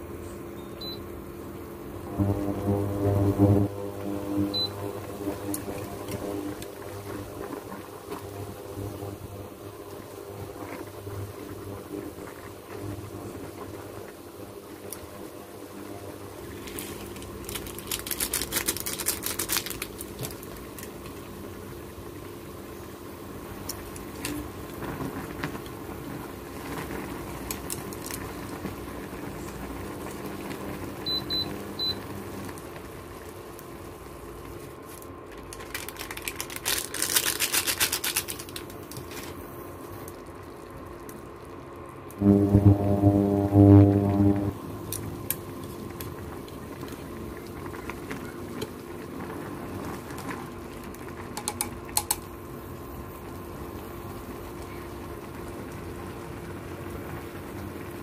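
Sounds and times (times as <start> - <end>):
electrical hum: 0.0 - 58.0
water boiling in a pot: 0.0 - 58.0
plastic packet rustling: 16.6 - 20.9, 34.8 - 39.4.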